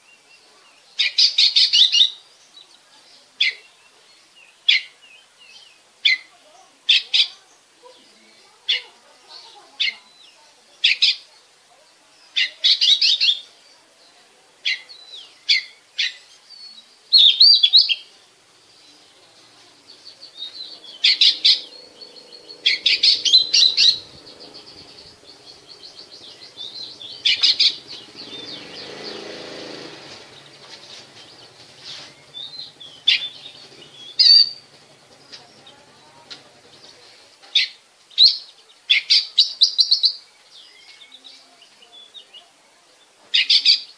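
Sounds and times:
bird chirping and chattering: 14.6 - 42.4
low hum: 19.2 - 37.0.

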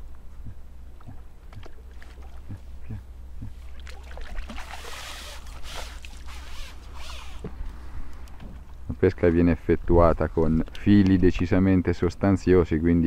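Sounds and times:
water splashing and pouring: 3.7 - 6.7
water streaming off net: 3.7 - 7.5.

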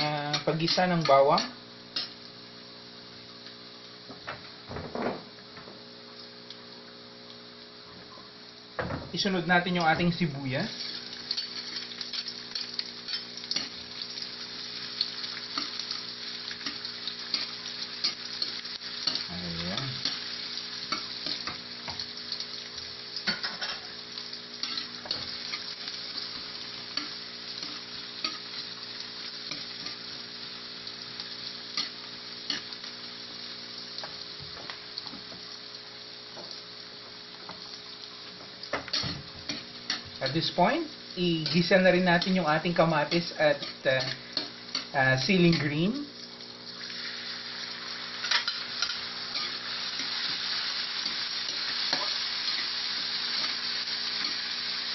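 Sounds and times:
onion sizzling in hot oil: 0.0 - 54.9
metal spatula scraping a wok: 48.2 - 50.4.

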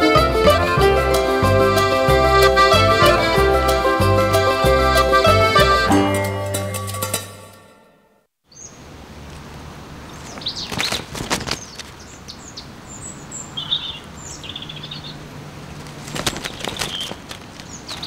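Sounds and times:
hen flapping wings: 10.6 - 12.0, 15.7 - 18.0.

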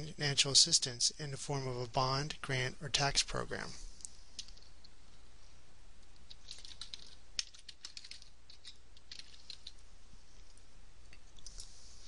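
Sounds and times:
computer keyboard keys clicking: 6.4 - 9.8.

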